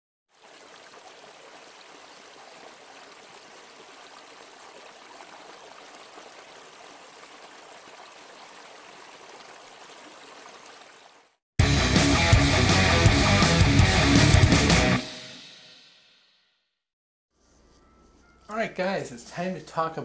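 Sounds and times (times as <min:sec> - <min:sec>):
stream splashing over rocks: 0:00.3 - 0:11.4.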